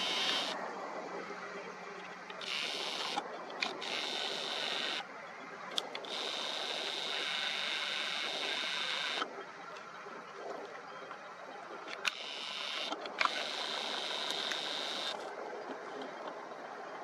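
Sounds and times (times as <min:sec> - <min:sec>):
camera zoom motor whirring: 0:00.0 - 0:00.6, 0:02.4 - 0:05.0, 0:06.0 - 0:09.3, 0:12.0 - 0:15.2
small camera clicks: 0:12.0 - 0:15.2.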